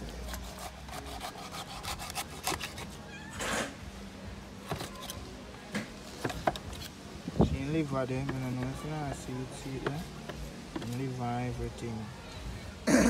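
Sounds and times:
knife cutting and scraping meat: 0:00.0 - 0:03.2, 0:04.7 - 0:05.2.

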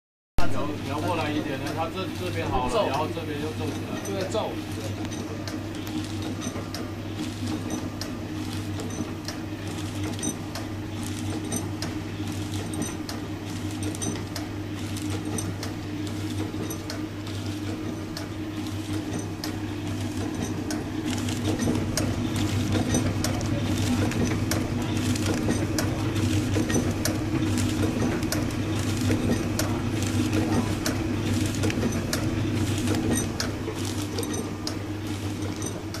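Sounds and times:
machine motor hum: 0:00.4 - 0:36.0
mechanical clicking: 0:03.7 - 0:36.0.

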